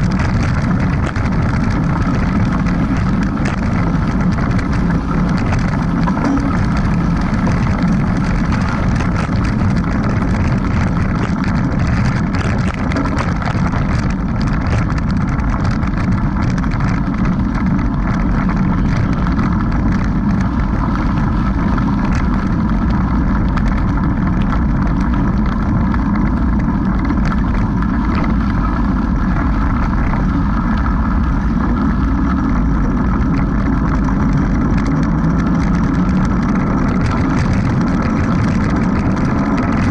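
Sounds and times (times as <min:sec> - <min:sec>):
small clicks and rattles: 0:00.0 - 0:39.9
tyres rumbling on dirt road: 0:00.0 - 0:39.9
wind buffeting microphone: 0:00.0 - 0:39.9.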